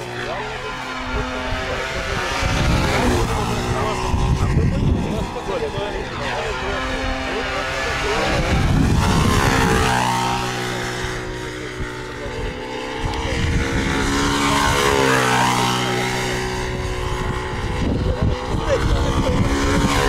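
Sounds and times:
model airplane engine circling: 0.0s - 20.0s.

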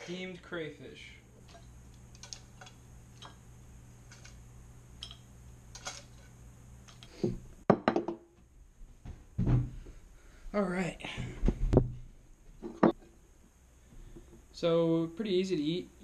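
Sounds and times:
steady low hum: 0.0s - 16.0s
metal tongs clinking on steel pot: 5.0s - 6.0s
objects knocking on wooden table: 7.2s - 8.3s.

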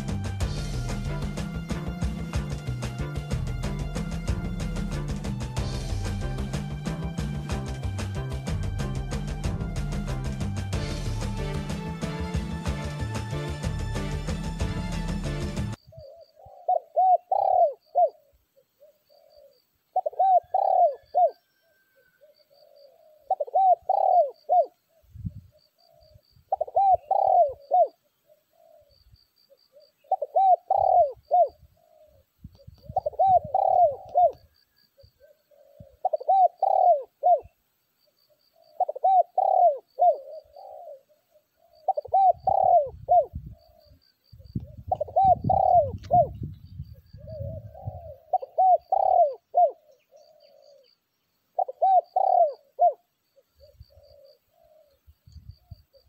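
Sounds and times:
small bird chirping: 15.8s - 56.0s
dove cooing: 15.9s - 37.6s, 38.3s - 51.0s, 51.6s - 56.0s.

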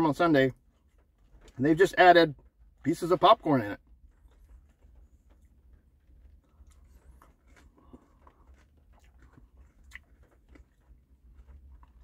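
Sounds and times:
low steady hum: 0.0s - 12.0s
person chewing ice cream: 3.8s - 12.0s.

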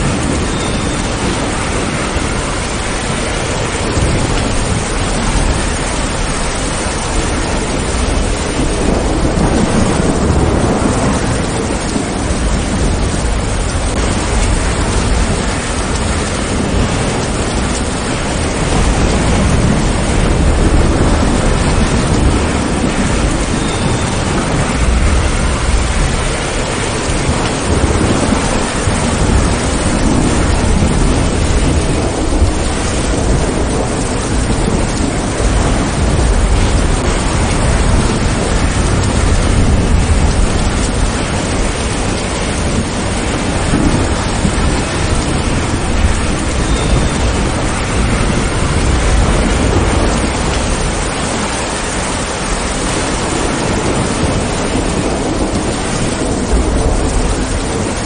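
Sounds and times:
low thunder rumbling: 0.0s - 58.0s
steady rain falling: 0.0s - 58.0s.

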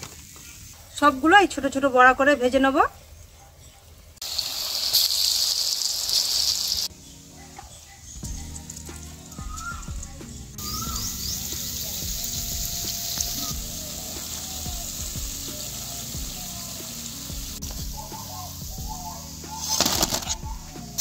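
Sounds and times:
crackling rustle of paper: 0.0s - 0.6s, 19.6s - 20.5s
fritters sizzling in oil: 4.2s - 21.0s.

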